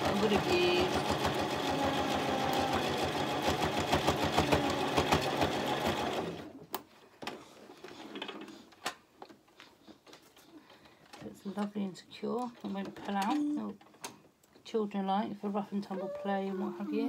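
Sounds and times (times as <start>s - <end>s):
sewing machine stitching: 0.0s - 6.6s.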